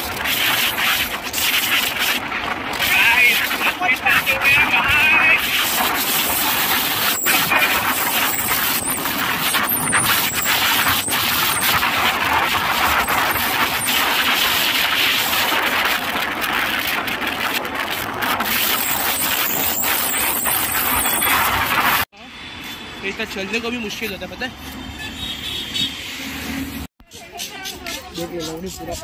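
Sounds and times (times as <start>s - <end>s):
road noise: 0.0s - 29.0s
wind rushing: 0.2s - 22.1s.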